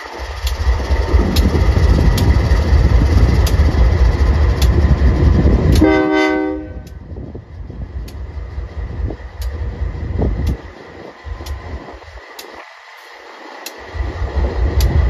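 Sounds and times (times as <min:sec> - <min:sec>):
diesel locomotive rumbling: 0:00.0 - 0:15.0
train horn blast: 0:05.7 - 0:07.0.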